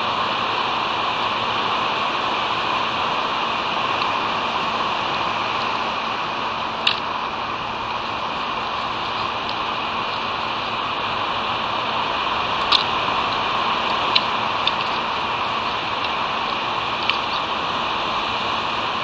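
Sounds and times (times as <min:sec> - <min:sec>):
steady rushing outdoor noise: 0:00.0 - 0:19.0.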